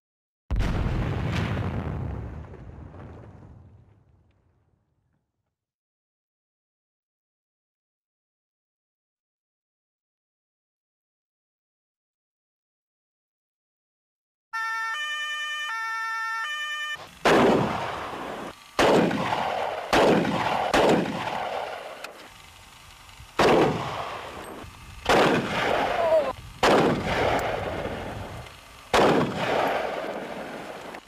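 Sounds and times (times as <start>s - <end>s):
two-tone emergency siren: 14.5s - 17.1s
echoing gunshots: 17.2s - 22.1s, 23.4s - 28.2s, 28.9s - 30.9s.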